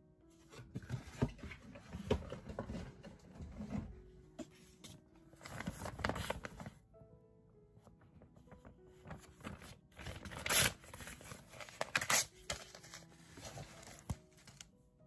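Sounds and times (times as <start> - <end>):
paper and plastic sleeve rustling: 4.8 - 6.8, 8.4 - 14.7.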